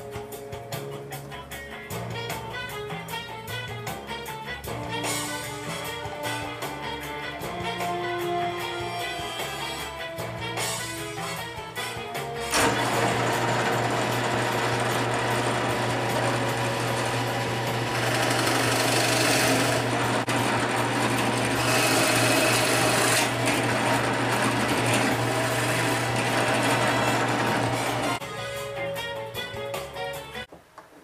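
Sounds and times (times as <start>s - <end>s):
drill bit boring into wood: 12.5s - 28.2s
drill press motor hum: 12.5s - 28.2s.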